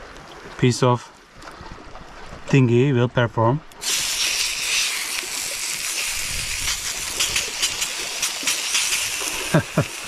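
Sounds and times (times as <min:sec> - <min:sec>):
steak sizzling in a pan: 0:03.8 - 0:10.0.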